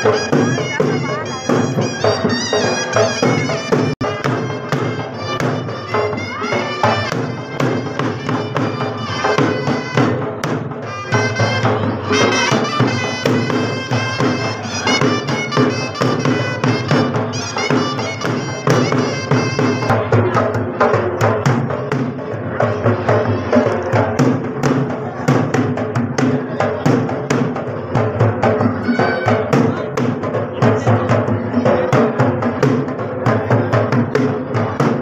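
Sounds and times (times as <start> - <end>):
wind instrument melody: 0.0 - 20.6
drum beats: 0.0 - 35.0.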